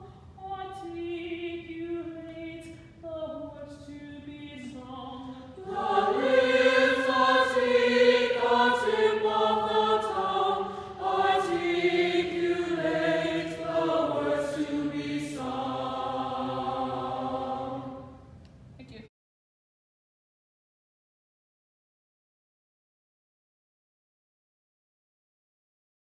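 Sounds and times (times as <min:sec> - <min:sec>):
choir singing: 0:00.0 - 0:18.4.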